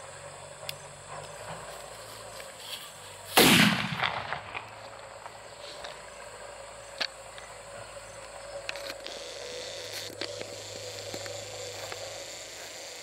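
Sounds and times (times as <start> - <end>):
explosion echo: 3.4 - 4.6
small clicks: 8.2 - 13.0.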